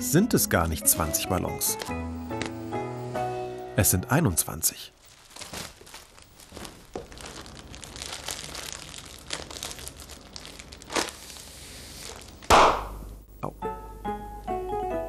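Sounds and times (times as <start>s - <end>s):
plastic bag crinkling: 4.9s - 12.5s
plastic bag bursting pop: 5.4s - 11.3s, 12.1s - 13.1s.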